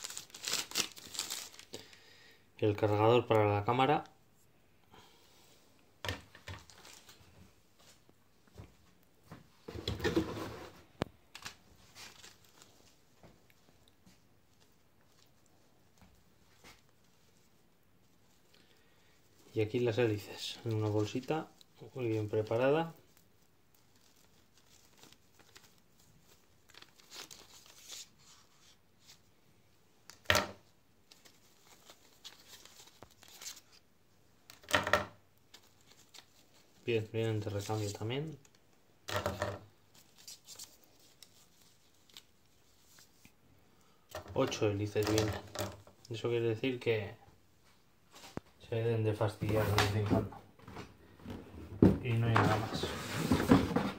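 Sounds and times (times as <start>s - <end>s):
plastic bag rustling: 0.0s - 2.0s, 6.5s - 8.0s, 9.6s - 13.8s, 19.2s - 29.3s.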